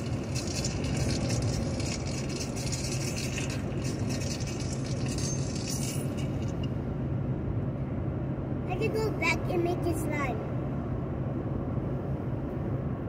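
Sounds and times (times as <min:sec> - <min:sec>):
low hum: 0:00.0 - 0:08.7
car road and engine noise: 0:00.0 - 0:13.0.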